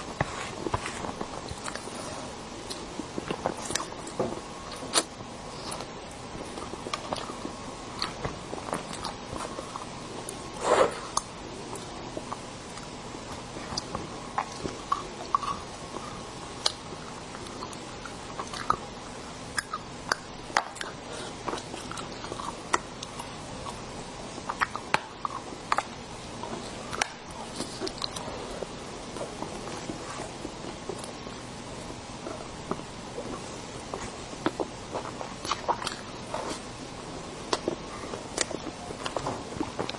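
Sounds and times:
chewing and wet mouth smacks: 0:34.0 - 0:36.6.

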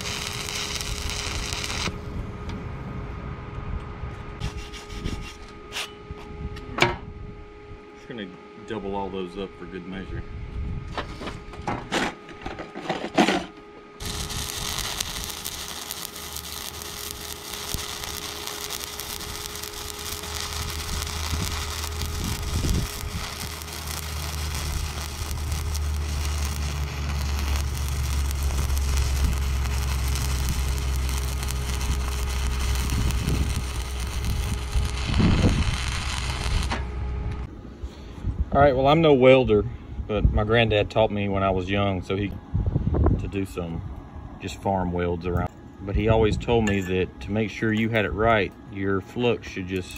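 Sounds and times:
welding arc crackling: 0:00.0 - 0:02.0, 0:14.0 - 0:37.5
low hum: 0:00.0 - 0:49.9.

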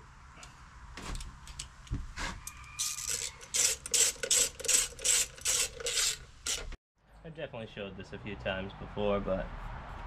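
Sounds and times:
hand ratchet clicking: 0:02.8 - 0:06.8.

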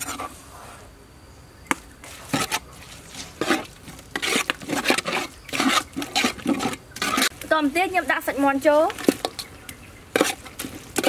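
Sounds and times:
spoon scraping in metal pot: 0:00.0 - 0:00.4, 0:02.0 - 0:07.4, 0:10.1 - 0:11.0.

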